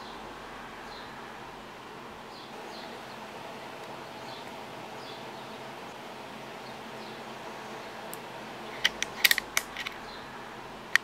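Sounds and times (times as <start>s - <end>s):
sharp mechanical clicks: 8.8s - 10.0s.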